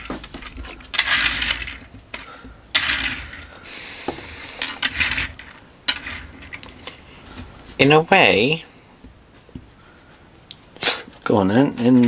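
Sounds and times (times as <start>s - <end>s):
toy cars clicking on wood: 0.0s - 3.7s, 4.5s - 6.9s
toy cars scraping rattles: 0.0s - 7.2s.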